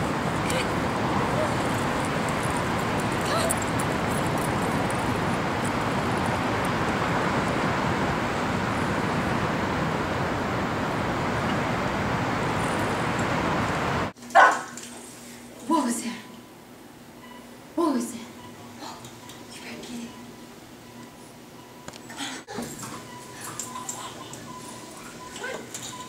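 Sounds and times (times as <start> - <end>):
rushing city background noise: 0.0 - 14.2.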